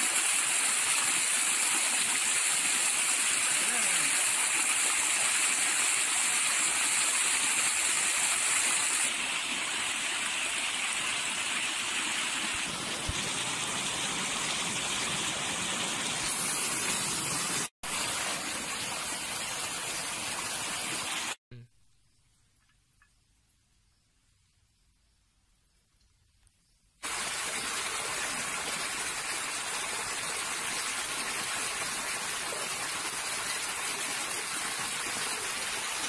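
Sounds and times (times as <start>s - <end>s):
water gushing over stone: 0.0s - 21.4s, 27.0s - 36.0s.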